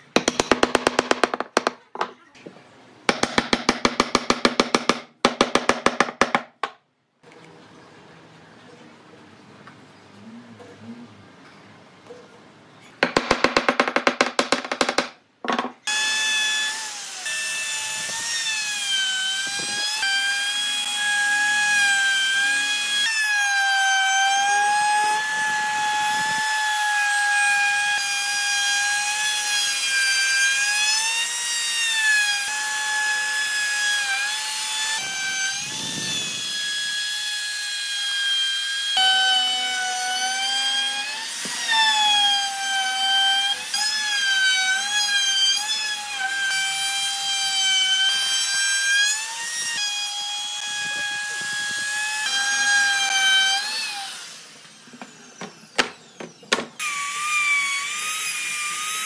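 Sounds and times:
power tool motor whine: 34.9 - 37.0, 49.2 - 59.0.

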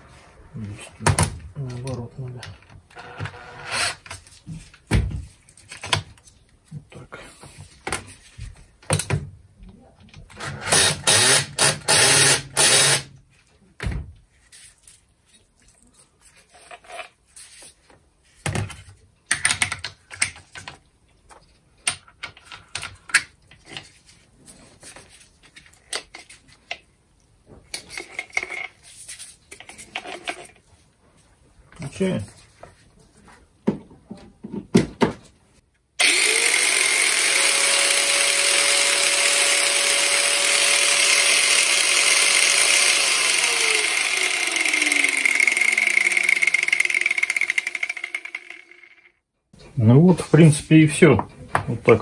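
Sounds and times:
angle grinder: 2.9 - 4.0, 10.4 - 13.1, 36.0 - 49.1.

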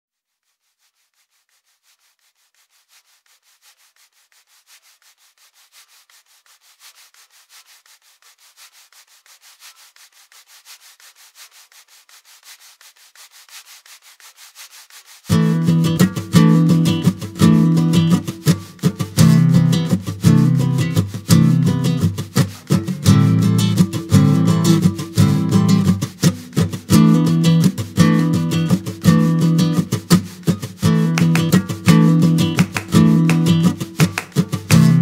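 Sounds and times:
rhythmic scraping strokes: 0.7 - 35.0.

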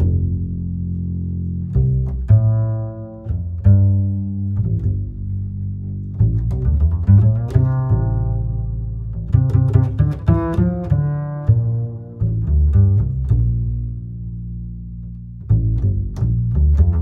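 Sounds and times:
low plucked double bass notes: 0.0 - 17.0.

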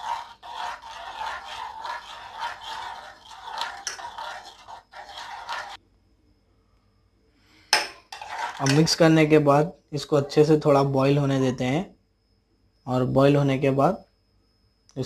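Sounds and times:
metal spoon scraping a pot: 0.0 - 5.8, 7.8 - 9.0.

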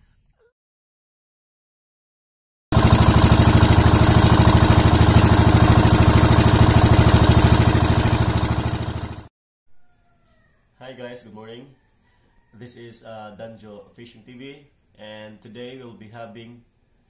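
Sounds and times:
small engine running: 2.7 - 9.3.

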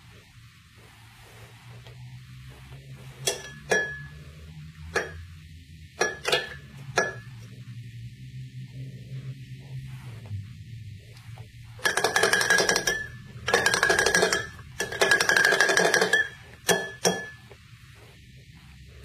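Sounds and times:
metal spoon stirring in glass: 3.2 - 4.2, 6.0 - 7.3, 11.8 - 17.5
spoon clinking glass: 3.3 - 4.2, 6.0 - 7.3, 11.8 - 17.4.

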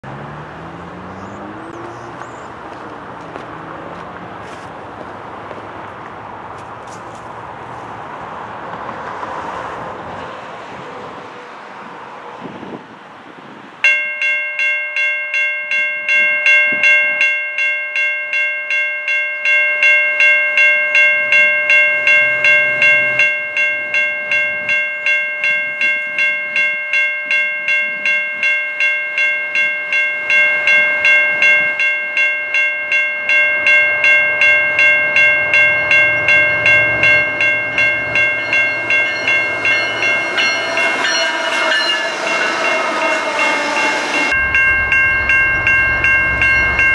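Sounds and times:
railway crossing bell: 0.0 - 10.8, 13.8 - 46.9
diesel locomotive rumble: 0.0 - 13.8, 21.2 - 24.8, 29.8 - 46.9.

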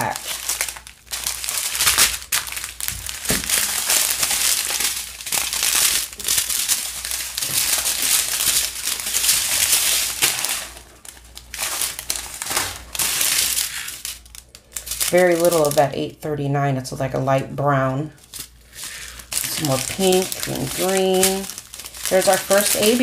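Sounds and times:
plastic bags crinkling: 0.0 - 16.2, 17.8 - 23.0.

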